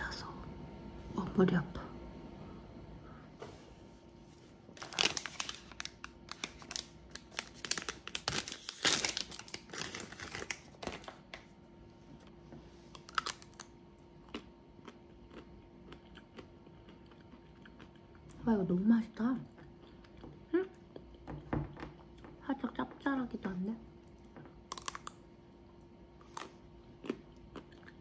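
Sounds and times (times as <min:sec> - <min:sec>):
packaging crinkling: 0:04.7 - 0:11.5, 0:12.9 - 0:13.7.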